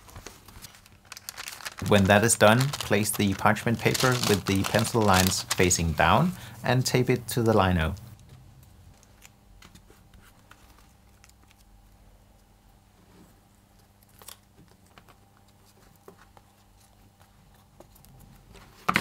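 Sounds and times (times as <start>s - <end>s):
paper rustling: 0.0s - 6.2s.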